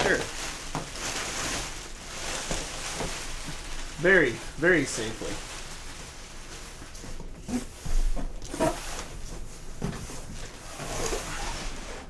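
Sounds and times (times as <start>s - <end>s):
plastic packing rustling: 0.0s - 12.0s
cardboard flaps scraping and knocking: 6.1s - 12.0s.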